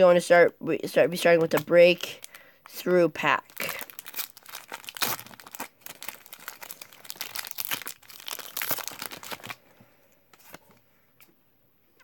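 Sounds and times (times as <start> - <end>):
foil wrapper crinkling: 1.3 - 9.6.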